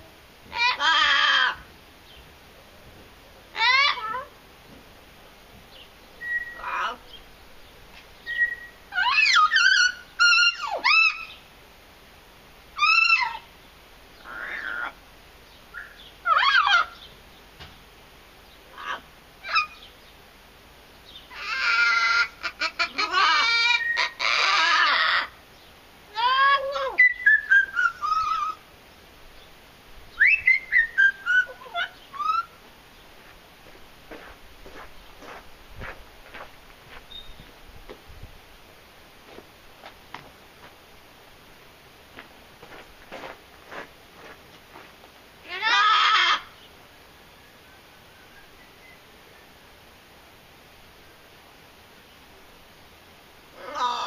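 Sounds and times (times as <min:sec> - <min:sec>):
parrot whistling calls: 0:06.2 - 0:06.9, 0:08.3 - 0:11.4, 0:26.8 - 0:28.6, 0:30.2 - 0:32.6
parrot harsh screech: 0:08.9 - 0:11.3, 0:21.3 - 0:22.4, 0:23.0 - 0:25.3, 0:45.6 - 0:46.5.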